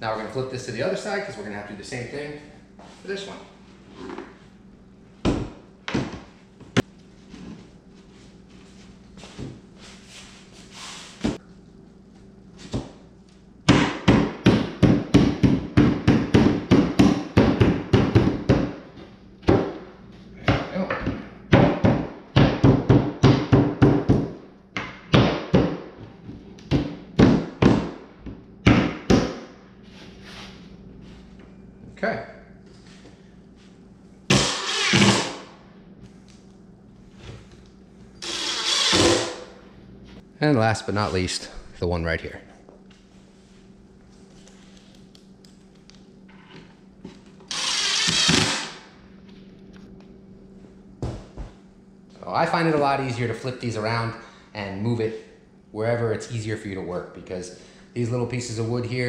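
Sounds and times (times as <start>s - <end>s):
fist pounding on wooden frame: 13.7s - 18.8s, 21.5s - 25.9s, 26.7s - 28.0s
cordless drill driving screw: 47.5s - 48.8s.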